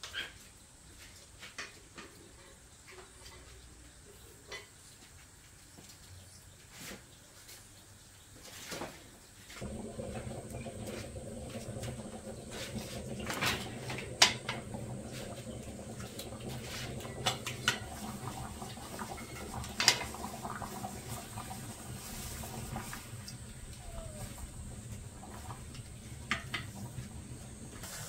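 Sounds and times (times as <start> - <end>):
wood fire burning: 9.6 - 28.0.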